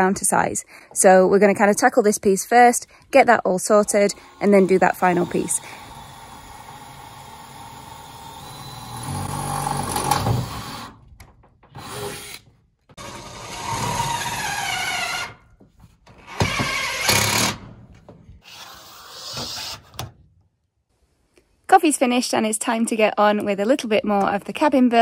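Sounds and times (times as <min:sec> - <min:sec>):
drill driving screws into metal: 0:11.8 - 0:15.4, 0:16.2 - 0:17.6.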